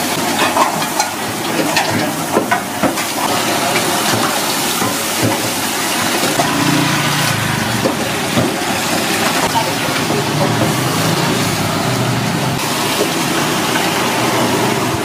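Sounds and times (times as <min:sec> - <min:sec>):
kitchen hiss: 0:00.0 - 0:15.0
metal utensils clinking: 0:00.1 - 0:06.9, 0:07.8 - 0:11.0.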